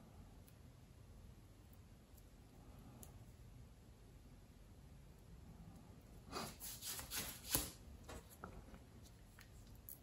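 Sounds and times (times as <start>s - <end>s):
hands rubbing and scraping: 6.3s - 9.8s.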